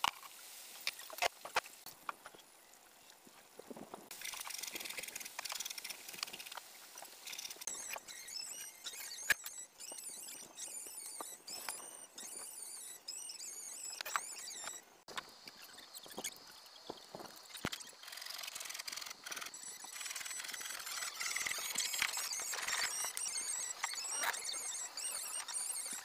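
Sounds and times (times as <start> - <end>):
high-pitched squeaky chirps: 7.2 - 26.0.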